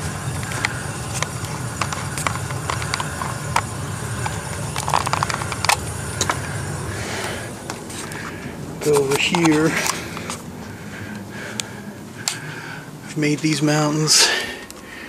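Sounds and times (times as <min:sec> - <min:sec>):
steady low hum: 0:00.0 - 0:15.0
camera handling clicks and rustles: 0:08.9 - 0:10.4.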